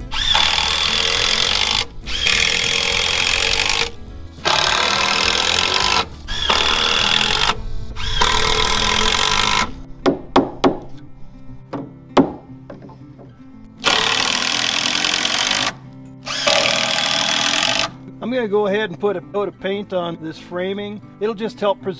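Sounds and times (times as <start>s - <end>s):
impact driver driving screws: 0.0s - 9.8s, 13.8s - 18.0s.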